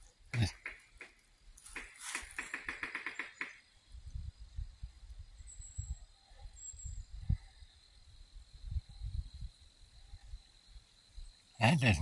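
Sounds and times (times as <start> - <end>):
rapid rattling taps: 0.5 - 3.6.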